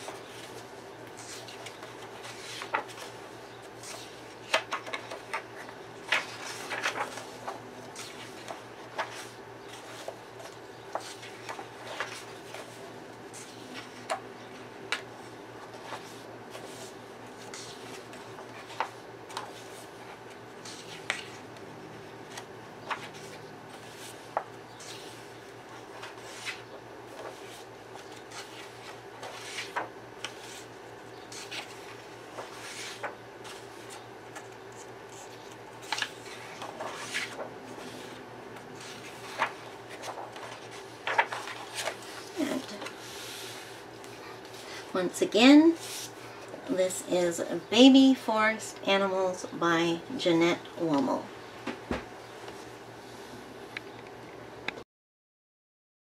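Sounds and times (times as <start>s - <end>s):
paper pages turning: 0.0s - 44.8s.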